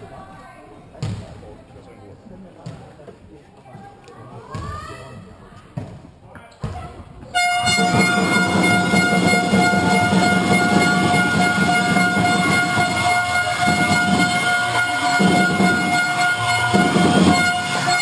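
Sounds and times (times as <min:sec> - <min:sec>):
crowd noise: 0:00.0 - 0:18.0
steady horn tone: 0:07.4 - 0:18.0.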